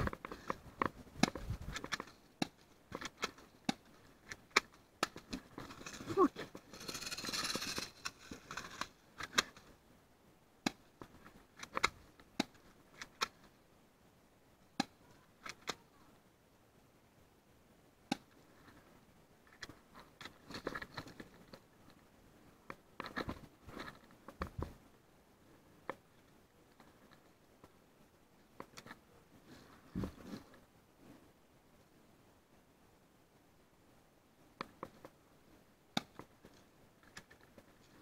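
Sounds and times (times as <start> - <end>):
rustling of dry leaves and clothing: 0.0 - 10.0, 18.2 - 31.4, 34.7 - 38.0.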